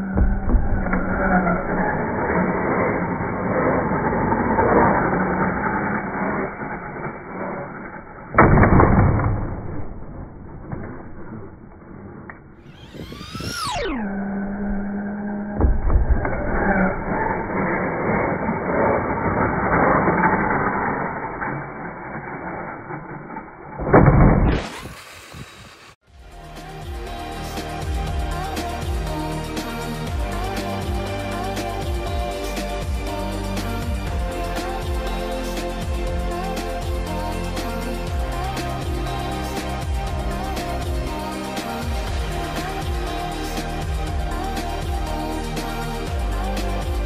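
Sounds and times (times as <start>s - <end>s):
dull rushing noise: 0.0s - 47.0s
toy truck motor running: 0.7s - 8.3s, 12.6s - 15.4s, 16.4s - 23.7s, 24.5s - 47.0s
toy truck landing thud: 8.3s - 11.2s, 23.8s - 25.8s.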